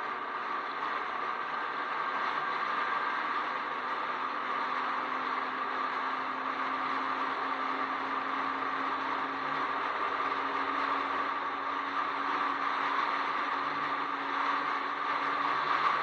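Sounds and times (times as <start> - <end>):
vehicle driving at speed: 0.0 - 16.0.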